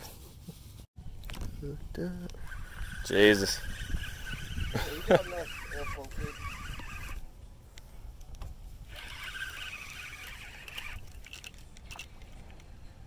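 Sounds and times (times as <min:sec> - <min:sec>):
wind rumbling on microphone: 0:01.0 - 0:13.0
fishing reel being cranked: 0:02.2 - 0:07.2, 0:08.9 - 0:12.4.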